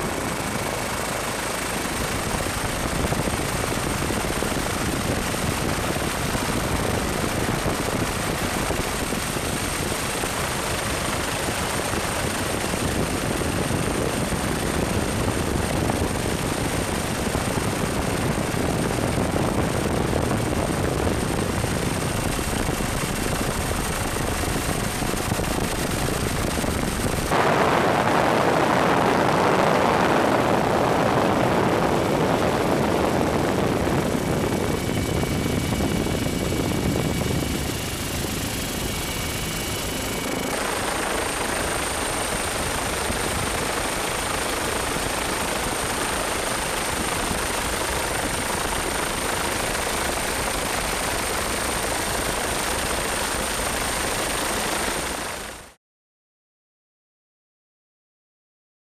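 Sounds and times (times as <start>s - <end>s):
helicopter engine and rotor: 0.0s - 55.8s
faint high whine: 20.7s - 43.4s.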